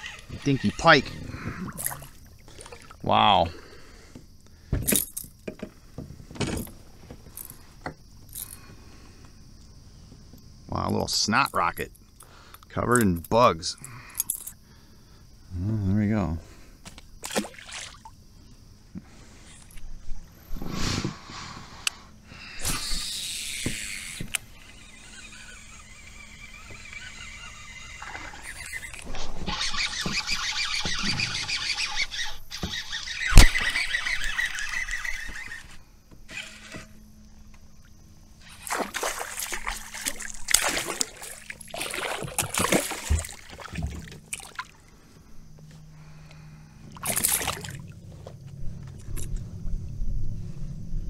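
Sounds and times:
fishing reel whirring: 0:00.0 - 0:02.2, 0:22.6 - 0:37.1, 0:38.4 - 0:43.5
fish splashing at surface: 0:38.5 - 0:44.8, 0:47.0 - 0:47.9.

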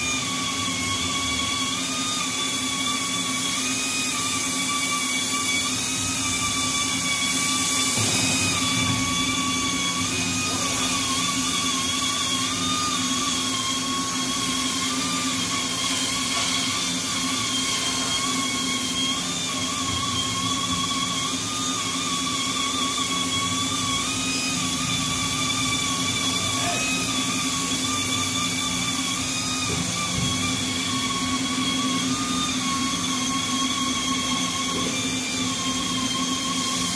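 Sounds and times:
machine spindle whine: 0:00.0 - 0:36.9.

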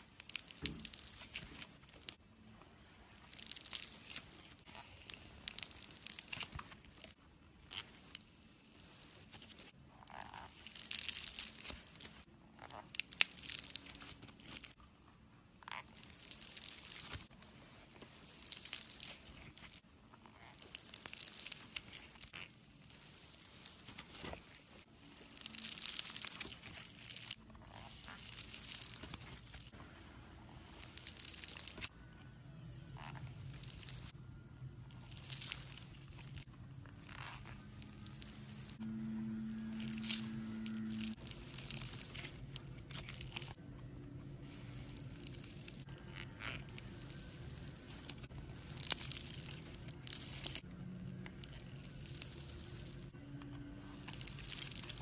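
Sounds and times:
slime crackling and crunching: 0:00.0 - 0:14.8, 0:15.6 - 0:32.0, 0:32.9 - 0:55.0.

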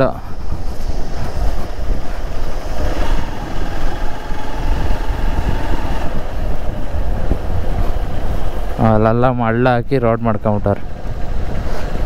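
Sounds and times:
motorcycle engine rumbling: 0:00.0 - 0:09.1.

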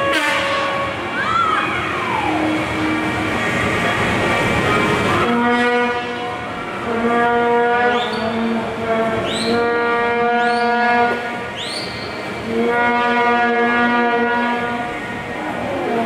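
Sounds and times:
crowd noise: 0:00.0 - 0:16.0
horn blasts: 0:00.0 - 0:16.0
short rising whistles: 0:11.6 - 0:12.2.

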